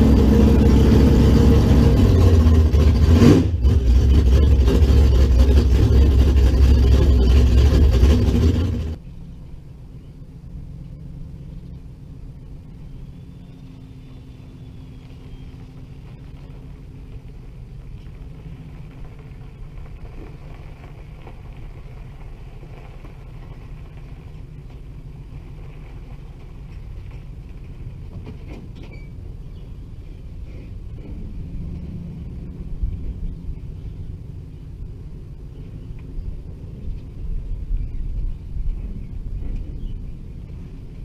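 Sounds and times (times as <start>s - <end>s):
loud engine cutting off: 0.0s - 9.0s
distant car engine rumble: 0.0s - 41.0s.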